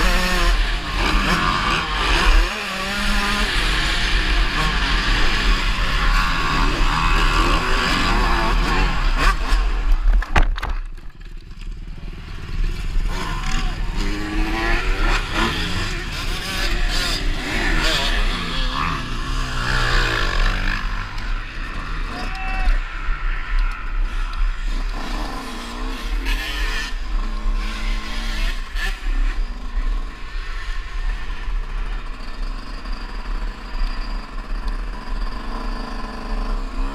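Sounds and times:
motocross engine revving: 0.0 - 10.0, 11.8 - 36.9.

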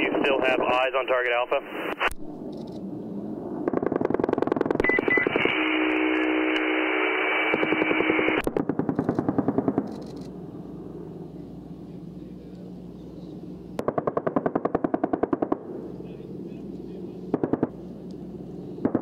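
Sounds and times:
steady low drone: 0.0 - 13.9, 15.5 - 19.0.

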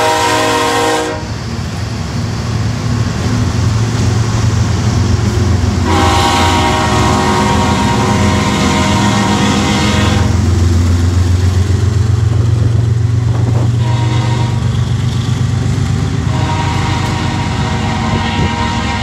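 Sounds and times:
train air horn: 0.0 - 1.4, 5.8 - 10.5, 13.6 - 14.8, 16.2 - 19.0
diesel locomotive engines rumbling: 0.0 - 19.0.

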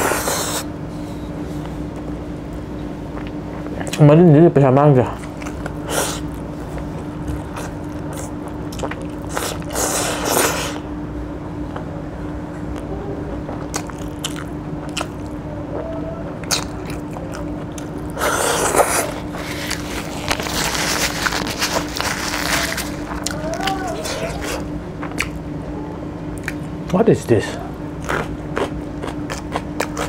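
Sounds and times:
man chewing and sucking food: 0.0 - 2.2, 3.0 - 4.0, 5.1 - 10.9, 12.6 - 25.4, 26.3 - 26.9, 27.8 - 30.0
wet mouth noises: 7.4 - 10.9, 13.5 - 21.9.

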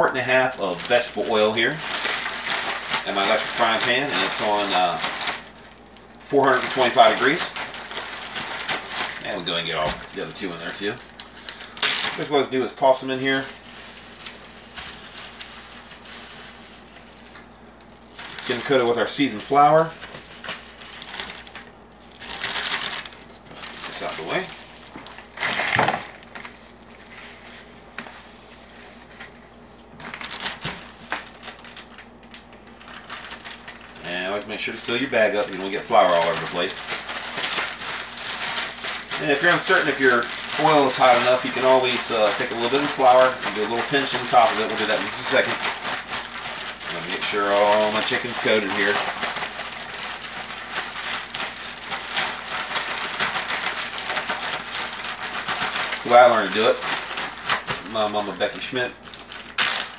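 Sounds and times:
flour patter in bag: 0.0 - 5.7, 6.3 - 29.4, 30.0 - 59.9
plastic packaging crinkling: 0.0 - 59.9.

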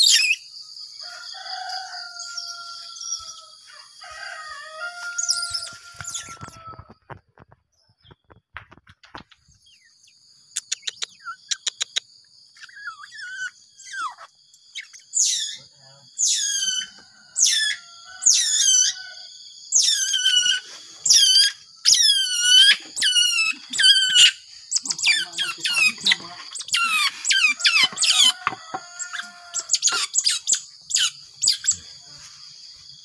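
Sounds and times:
sharp clicks: 10.5 - 12.1
baby otter squealing: 12.7 - 14.3, 16.2 - 19.0, 19.8 - 31.7.

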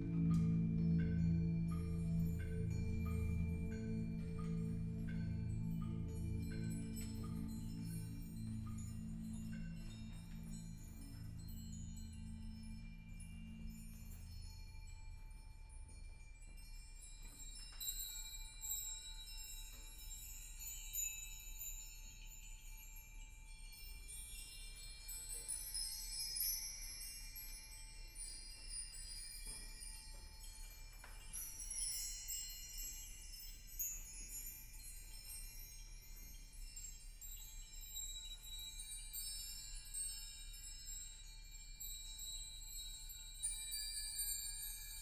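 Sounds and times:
low tone: 0.0 - 16.8
metallic chime-like ringing: 0.0 - 45.0
soft struck percussion notes: 0.0 - 45.0.

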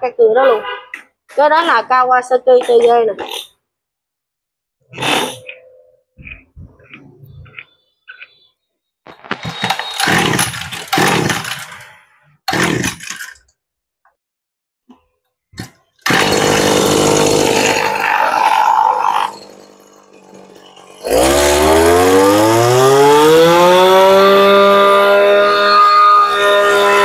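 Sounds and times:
recoil starter pulls: 9.2 - 13.5, 15.6 - 24.5
brushcutter engine running and revving: 16.1 - 18.4, 21.0 - 27.0.

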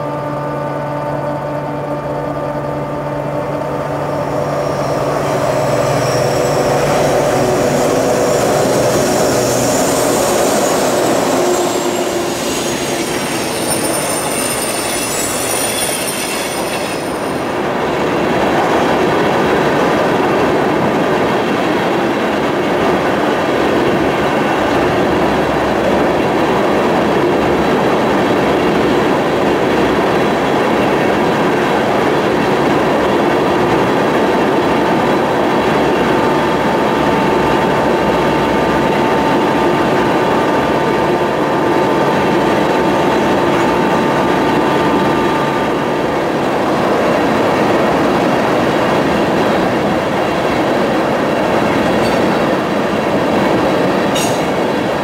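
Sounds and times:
steady ringing tone: 0.0 - 18.0
train wheels rumbling on rail: 0.0 - 55.0
high wheel squeal: 3.2 - 17.6.

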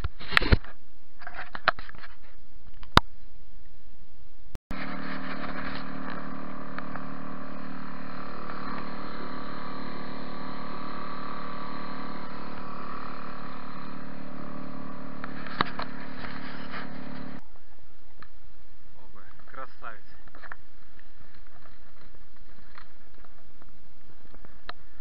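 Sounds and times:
outboard motor running: 4.7 - 17.4.

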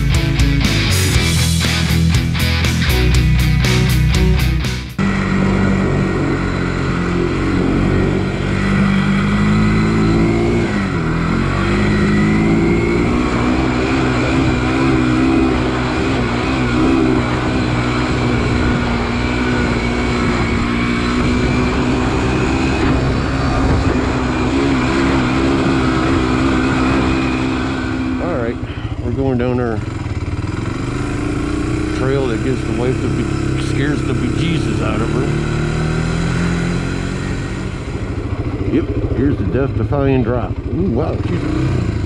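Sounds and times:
rock music: 0.0 - 30.1
atv engine running: 0.0 - 42.0.

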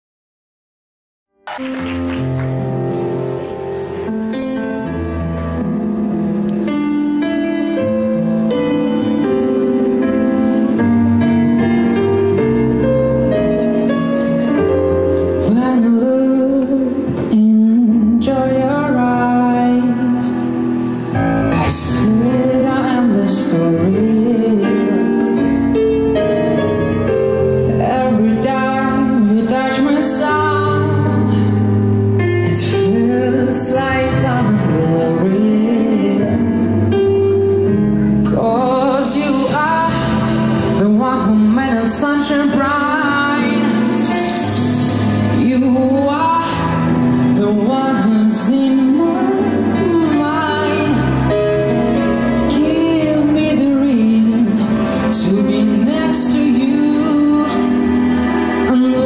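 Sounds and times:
instrumental backing: 1.4 - 59.0
man singing pop ballad: 15.3 - 20.6, 21.6 - 25.3, 27.6 - 31.7, 32.4 - 36.8, 38.2 - 51.6, 52.4 - 59.0.

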